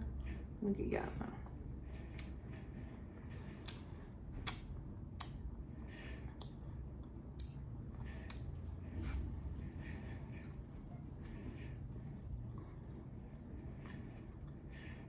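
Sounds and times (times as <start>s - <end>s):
low steady hum: 0.0s - 15.0s
mouth clicks and smacks eating: 1.5s - 5.6s, 6.3s - 8.8s.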